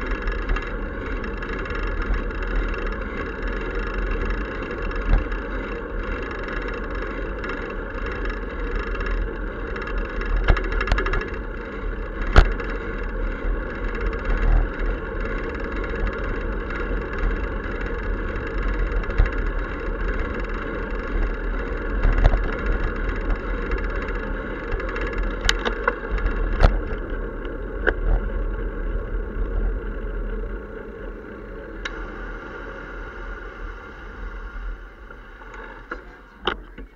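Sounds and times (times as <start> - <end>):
bicycle riding noise: 0.0 - 36.9
sharp clicks and knocks: 12.2 - 12.6, 24.7 - 28.2.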